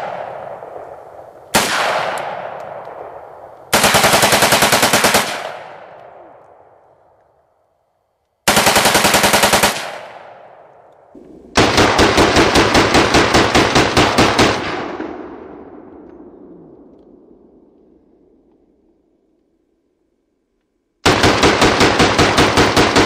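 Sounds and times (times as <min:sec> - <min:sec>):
gunshot echo: 0:00.0 - 0:03.8
rifle firing rapid bursts: 0:03.7 - 0:05.8, 0:08.5 - 0:10.5, 0:11.6 - 0:14.9, 0:21.0 - 0:23.0.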